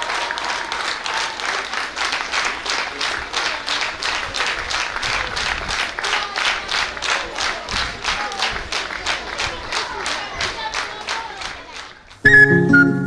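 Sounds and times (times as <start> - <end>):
audience clapping in rhythm: 0.0 - 12.3.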